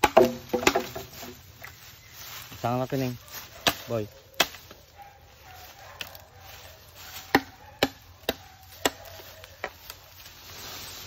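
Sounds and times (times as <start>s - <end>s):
blade chopping into bamboo: 0.0s - 1.1s, 3.6s - 4.7s, 7.1s - 9.8s.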